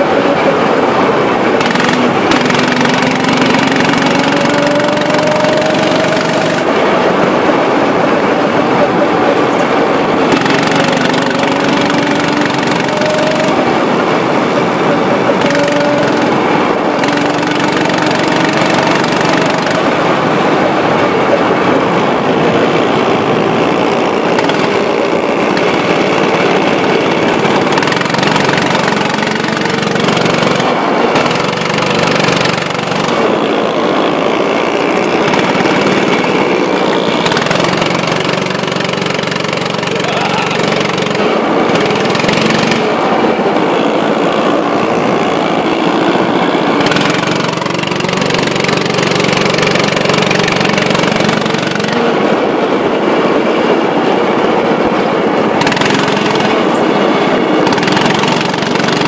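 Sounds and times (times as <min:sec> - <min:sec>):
go-kart engines racing: 0:00.0 - 0:59.0.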